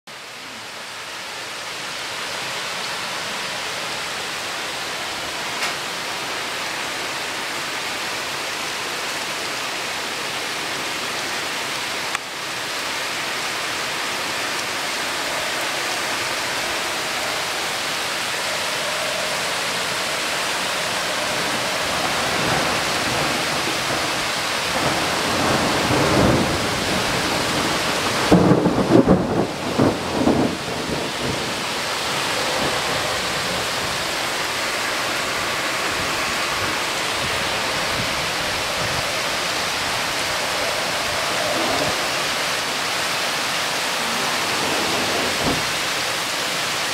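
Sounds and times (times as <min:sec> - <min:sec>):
heavy rain on forest: 0:00.1 - 0:46.9
thunder rumbling: 0:14.5 - 0:46.3.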